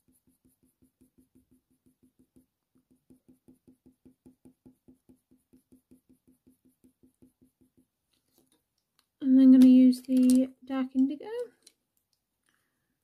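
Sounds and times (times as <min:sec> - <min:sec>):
pencil scratching on paper: 0:00.0 - 0:07.9.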